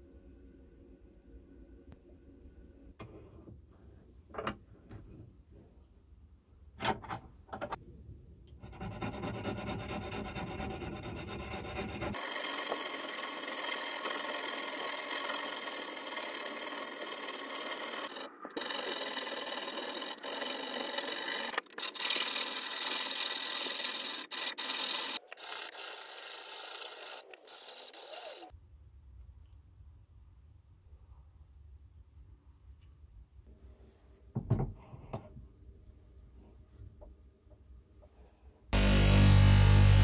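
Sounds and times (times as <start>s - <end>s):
file rasping over brass: 8.6s - 12.8s.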